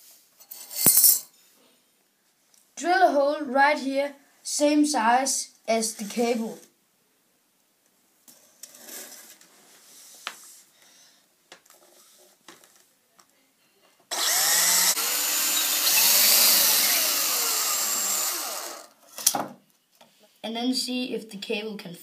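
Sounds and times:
cordless drill boring into wood: 14.1s - 19.0s.

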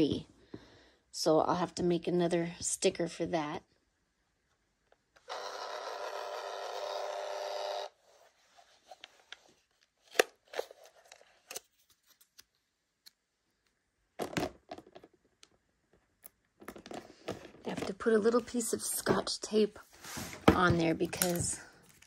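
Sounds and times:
label maker motor whir: 5.3s - 8.0s.

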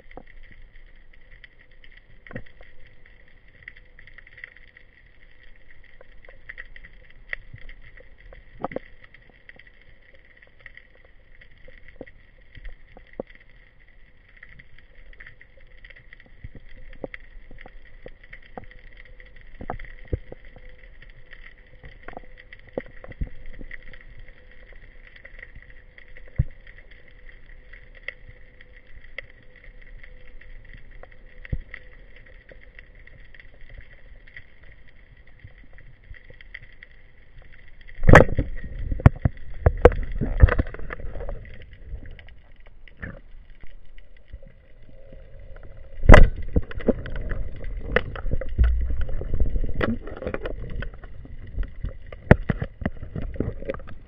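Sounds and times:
short underwater clicks and knocks: 37.9s - 44.5s, 45.6s - 54.0s.

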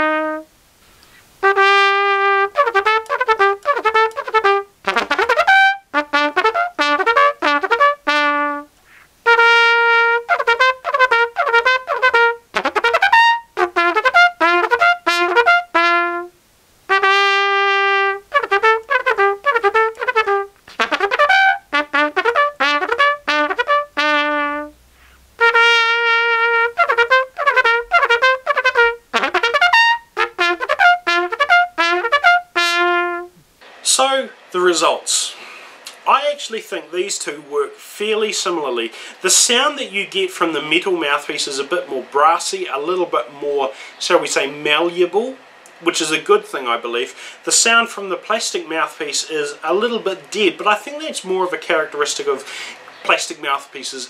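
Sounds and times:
trumpet playing: 0.0s - 0.5s, 1.4s - 33.4s.

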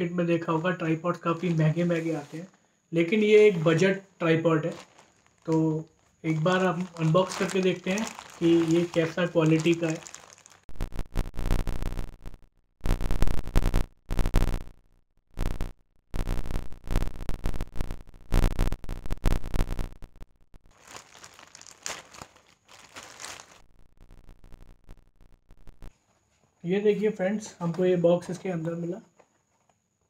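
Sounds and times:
plastic bag crinkling: 1.3s - 3.9s, 4.6s - 10.7s, 20.6s - 23.7s.

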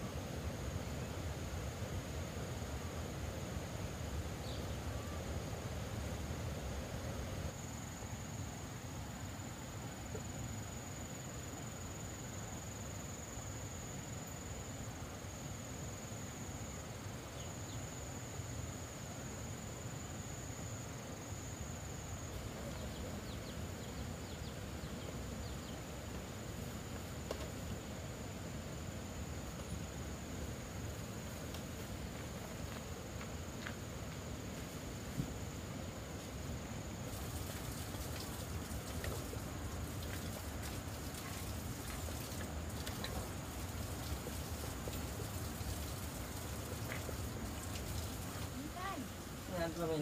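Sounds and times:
insects chirring: 0.0s - 50.0s
low background noise: 0.0s - 50.0s
faint ticks: 31.4s - 31.9s.

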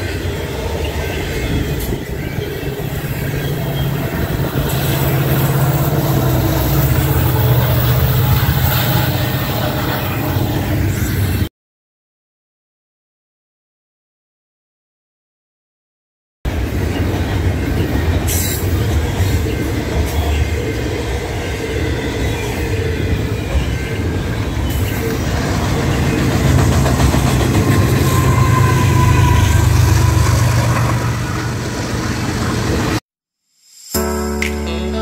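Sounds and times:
diesel locomotive: 0.0s - 11.5s, 16.5s - 33.0s
train wheels rumbling on rail: 0.0s - 11.5s, 16.5s - 33.0s.

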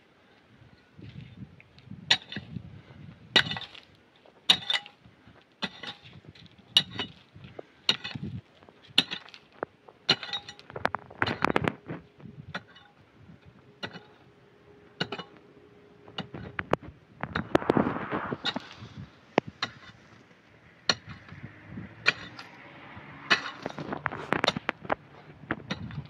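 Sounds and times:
soil scraping and rustling: 0.2s - 26.0s
pick chopping stony dirt: 2.1s - 2.6s, 3.3s - 3.9s, 4.5s - 5.0s, 5.6s - 13.0s, 17.3s - 20.0s, 20.8s - 21.4s, 22.0s - 22.6s, 23.2s - 26.0s.

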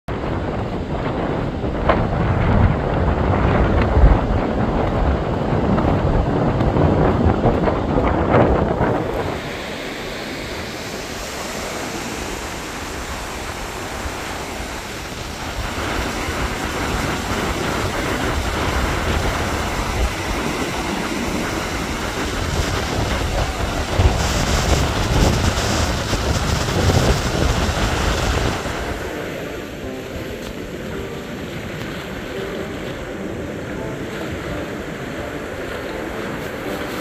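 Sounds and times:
surf breaking on beach: 0.1s - 37.0s
wind buffeting microphone: 0.1s - 37.0s.

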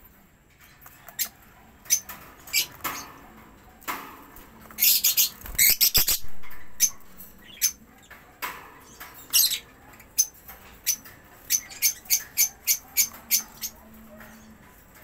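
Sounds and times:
budgerigars chirping: 4.8s - 7.8s.

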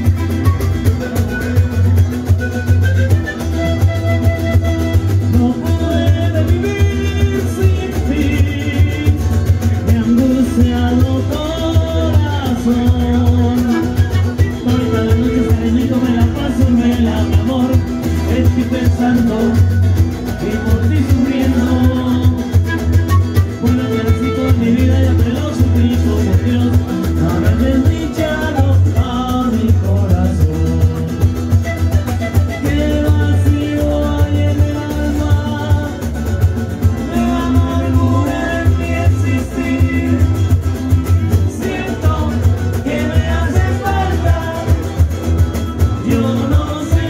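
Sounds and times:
latin american music with singing: 0.0s - 47.0s
pulsing bass beat: 0.0s - 47.0s.

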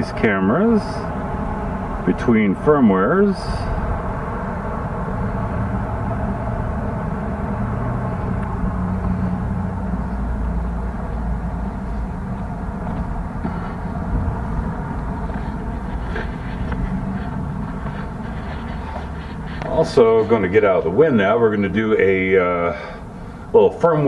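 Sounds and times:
wind buffeting microphone: 3.6s - 21.0s.

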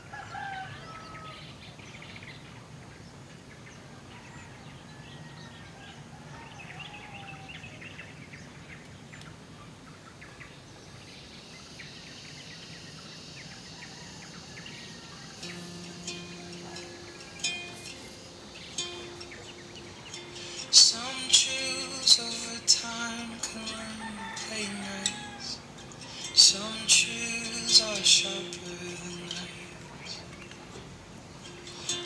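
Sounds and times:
small birds chirping: 0.3s - 32.0s
high insect hum: 10.7s - 32.0s
plucked-string music: 15.3s - 32.0s.

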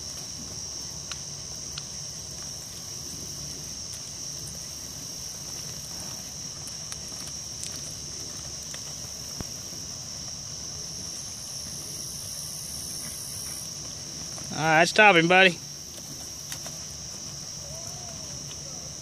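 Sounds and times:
night insects chirring: 0.0s - 19.0s.

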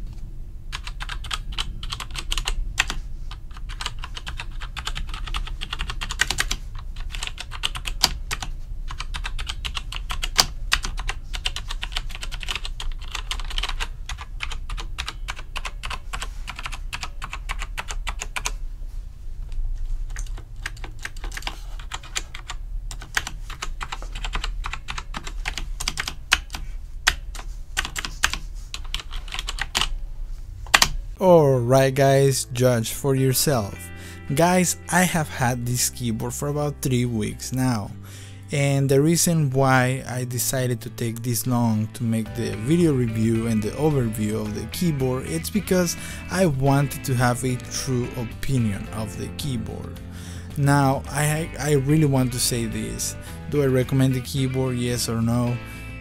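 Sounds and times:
mechanical keyboard typing: 0.7s - 18.5s, 20.1s - 29.9s.

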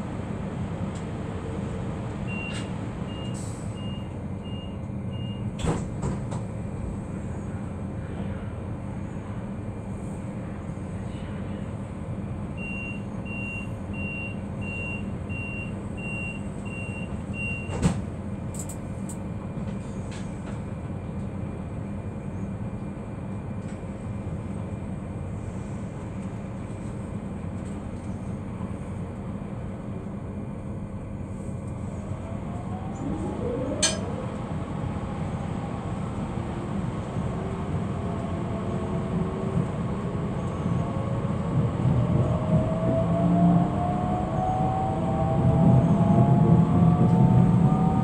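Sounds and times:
train interior hum: 0.0s - 48.0s
train doors thumping shut: 5.5s - 6.5s, 17.7s - 18.7s
door warning beeps: 12.6s - 17.8s.

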